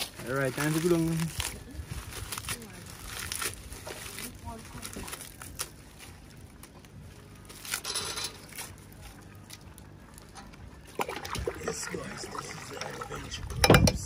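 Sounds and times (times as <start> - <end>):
water sloshing and trickling: 8.5 - 14.0.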